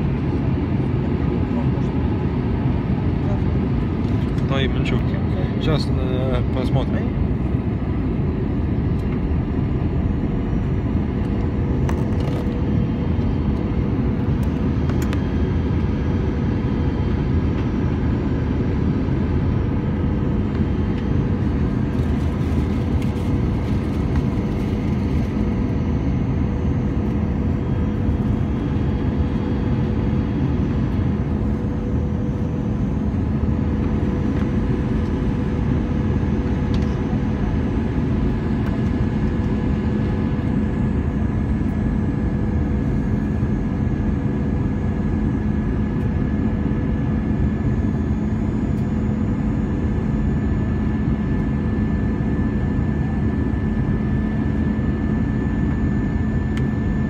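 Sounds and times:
high engine whine: 0:00.0 - 0:57.0
jet engine drone: 0:00.0 - 0:57.0
cabin airflow rush: 0:05.1 - 0:16.5.

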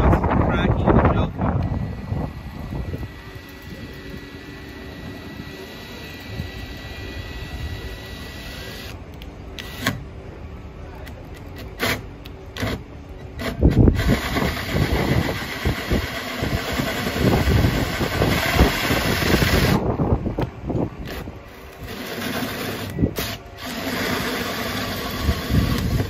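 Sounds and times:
cordless drill whirring: 0:01.5 - 0:09.0, 0:09.6 - 0:10.0, 0:13.4 - 0:19.9, 0:21.0 - 0:26.0
hole saw grinding fiberglass: 0:11.6 - 0:19.8, 0:21.0 - 0:26.0.

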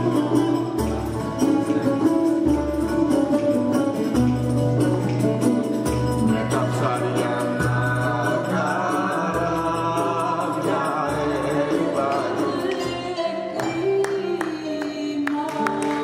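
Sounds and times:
hand-percussion beat: 0:00.0 - 0:16.0
several voices singing folk song: 0:06.2 - 0:14.9.

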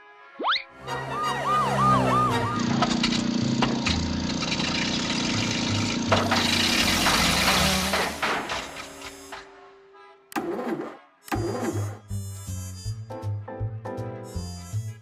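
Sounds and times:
rising cartoon whistle: 0:00.4 - 0:02.8
wavering siren-like tone: 0:00.4 - 0:02.9
city traffic din: 0:00.7 - 0:12.1.

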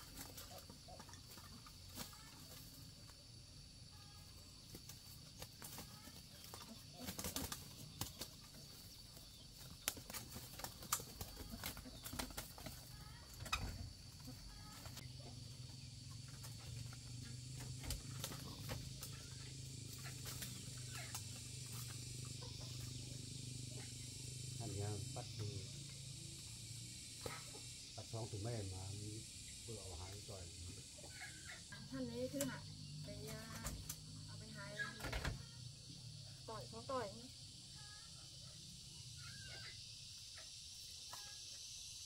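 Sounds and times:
chickens clucking: 0:00.0 - 0:28.3, 0:29.2 - 0:41.8
steady high hiss: 0:19.7 - 0:34.4.

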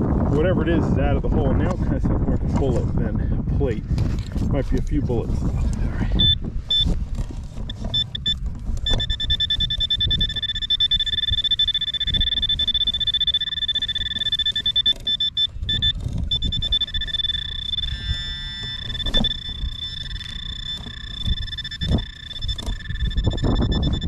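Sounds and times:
metal detector pinpointer beeping: 0:06.2 - 0:07.0, 0:07.7 - 0:24.0.

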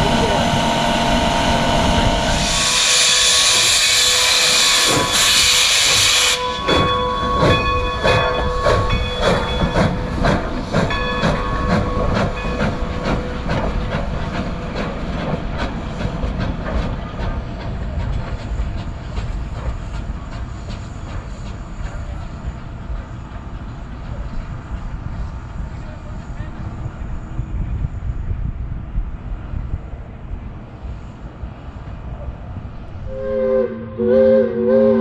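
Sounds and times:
steam hissing: 0:00.0 - 0:27.5
steam locomotive exhaust chuffs: 0:00.0 - 0:32.0, 0:32.6 - 0:35.0.

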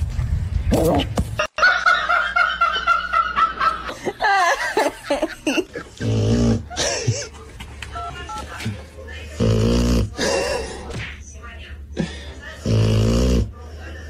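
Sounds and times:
person giggling: 0:01.4 - 0:07.4, 0:10.2 - 0:10.9.

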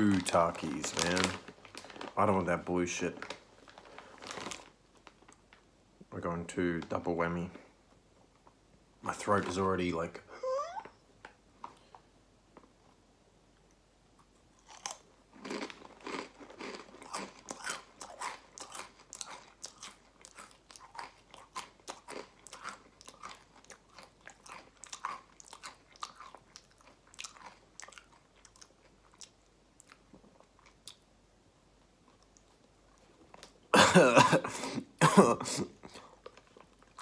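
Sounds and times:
chewing crisp chips: 0:14.2 - 0:31.1, 0:35.9 - 0:37.0.

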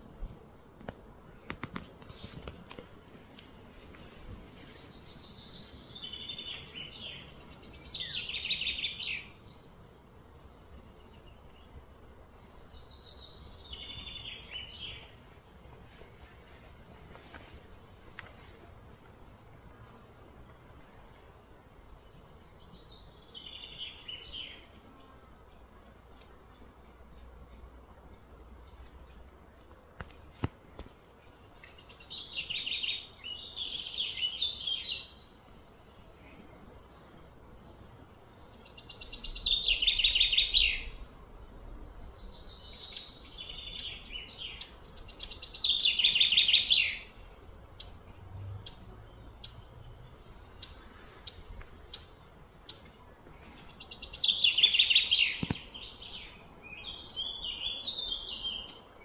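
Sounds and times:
bird chirps: 0:29.9 - 0:59.0
bird trilling song: 0:30.0 - 0:59.0.

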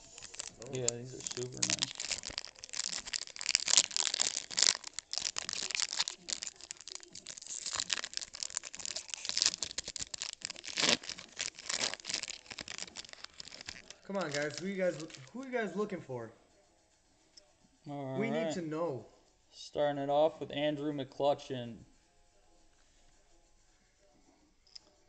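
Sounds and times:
cards and pack crinkling: 0:00.0 - 0:15.3.

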